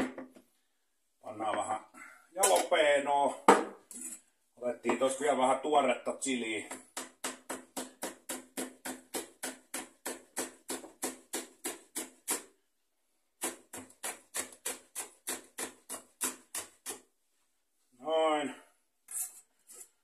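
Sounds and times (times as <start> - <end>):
knife chopping on plastic board: 6.7 - 12.5, 13.4 - 17.0.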